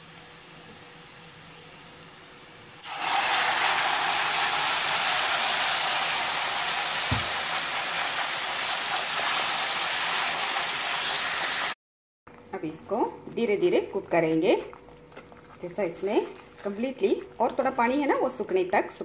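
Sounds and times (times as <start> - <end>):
tomato puree sizzling in hot oil: 0.0 - 11.8.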